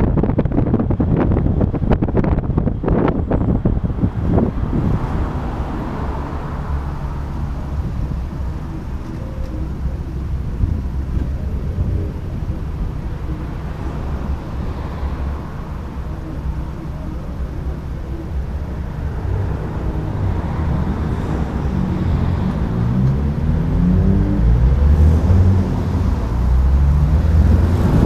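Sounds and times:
wind buffeting on microphone: 0:00.0 - 0:06.9, 0:09.8 - 0:16.6, 0:27.1 - 0:28.0
car engine and road rumble: 0:00.0 - 0:28.0.

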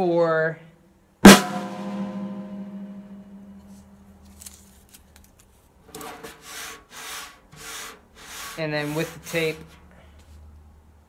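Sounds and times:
drum struck ringing: 0:01.3 - 0:03.8.

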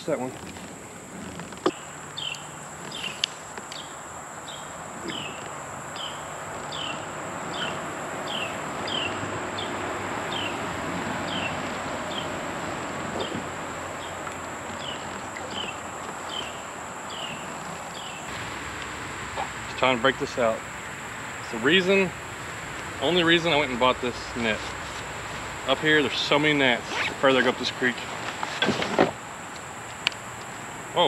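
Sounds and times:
background noise: 0:00.0 - 0:31.0
high insect hum: 0:00.0 - 0:31.0
animal chirping: 0:06.0 - 0:10.5.

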